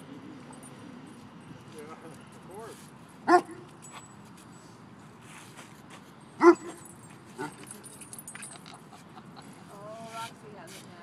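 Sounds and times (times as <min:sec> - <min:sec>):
dog barking: 0:03.3 - 0:03.6, 0:06.4 - 0:06.8.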